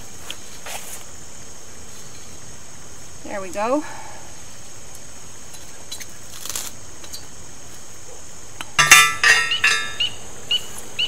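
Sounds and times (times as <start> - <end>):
insect noise: 0.0 - 11.0
metal clanks of post driver: 8.8 - 10.0.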